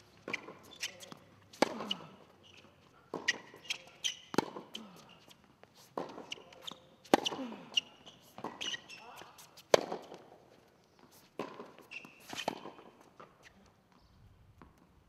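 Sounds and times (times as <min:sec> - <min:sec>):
racket hitting tennis ball: 0:00.0 - 0:05.1, 0:05.8 - 0:10.4, 0:11.1 - 0:13.4
ball bouncing on hard court: 0:03.1 - 0:04.7, 0:09.7 - 0:10.2.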